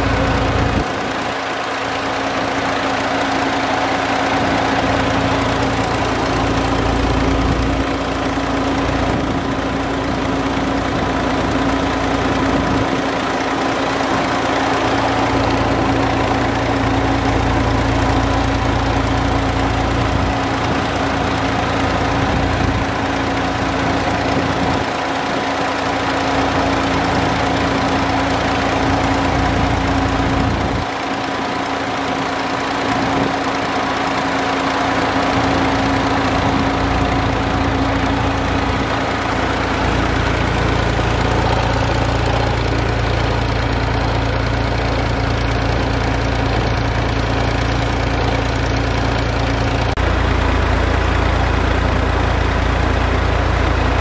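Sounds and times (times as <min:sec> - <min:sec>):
diesel tractor engine running: 0:00.0 - 0:54.0.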